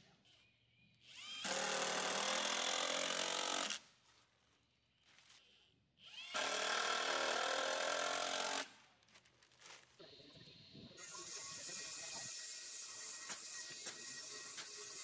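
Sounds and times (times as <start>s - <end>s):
cordless drill on wood: 1.1s - 3.8s, 6.0s - 8.7s, 11.0s - 15.0s.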